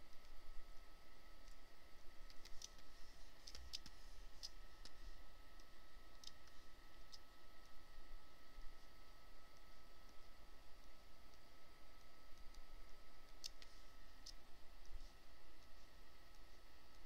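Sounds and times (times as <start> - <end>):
thin electrical whine: 0.0 - 17.0
computer mouse clicks: 2.2 - 5.0, 5.6 - 7.8, 13.2 - 15.0.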